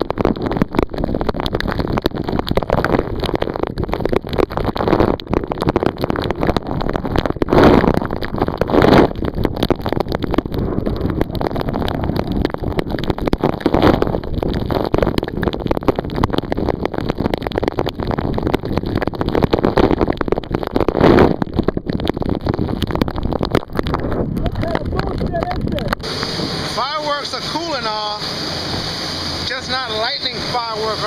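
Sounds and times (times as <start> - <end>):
wind buffeting microphone: 0.0 - 29.6.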